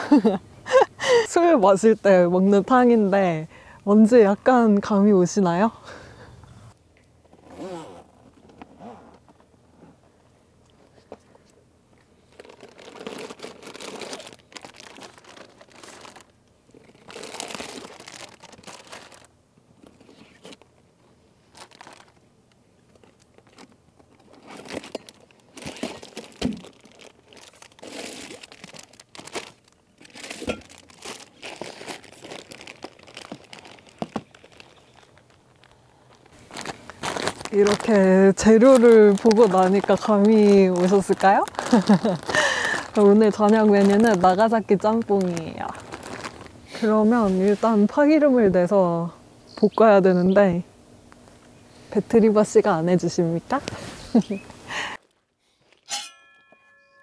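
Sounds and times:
stiff zipper dragged open: 7.3s - 10.0s
plastic bags crinkling: 12.2s - 20.8s, 21.4s - 47.6s.

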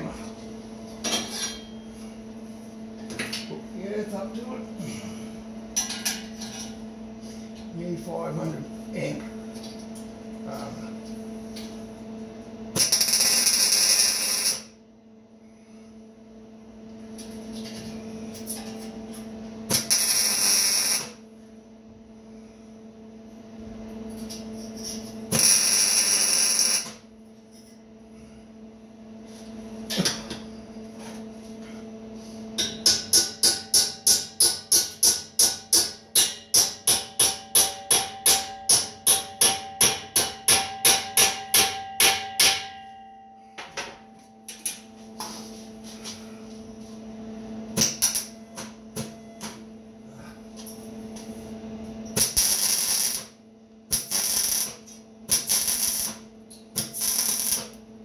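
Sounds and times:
steady low hum: 0.0s - 58.0s
hammering on steel: 32.6s - 44.0s.

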